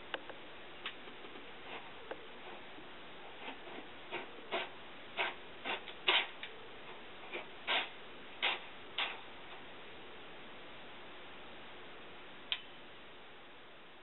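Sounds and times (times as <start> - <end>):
cat scratching in litter box: 1.1 - 9.6.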